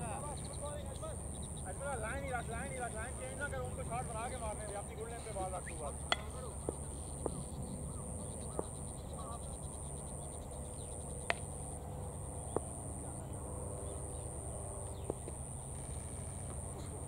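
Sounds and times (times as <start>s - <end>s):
distant voices: 0.0s - 17.0s
high-pitched insect drone: 6.4s - 17.0s.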